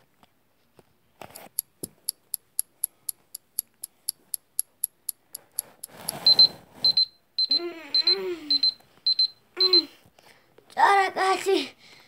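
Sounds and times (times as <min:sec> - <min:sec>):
alarm clock ticking: 0:01.6 - 0:09.9.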